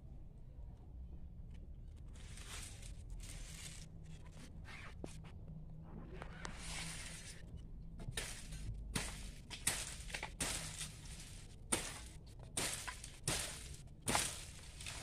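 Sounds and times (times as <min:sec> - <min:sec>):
palm fronds rustling and scraping: 0:01.9 - 0:15.0
sharp crack: 0:08.1 - 0:15.0.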